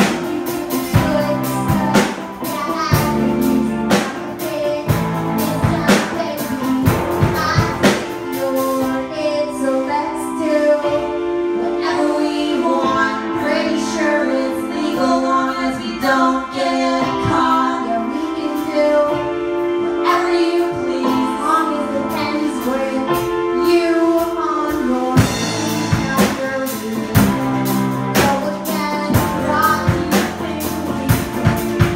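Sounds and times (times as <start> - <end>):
drum kit beat: 0.0 - 9.0, 21.1 - 31.9
live rock band playing: 0.0 - 31.9
woman singing: 0.0 - 31.9.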